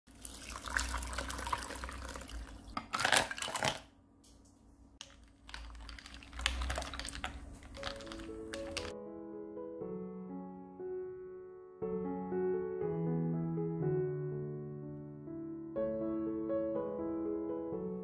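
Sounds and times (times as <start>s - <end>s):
water pouring into a bowl: 0.1s - 3.9s, 5.0s - 8.9s
ice and utensil clinking: 5.0s - 8.9s
soft music: 6.7s - 18.0s.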